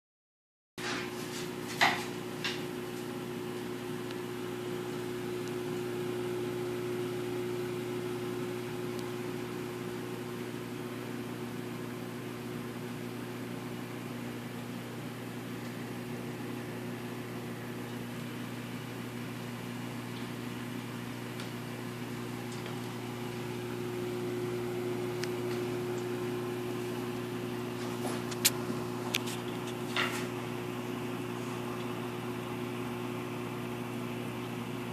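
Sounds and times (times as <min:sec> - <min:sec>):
aquarium pump hum and water hiss: 0:00.8 - 0:34.9.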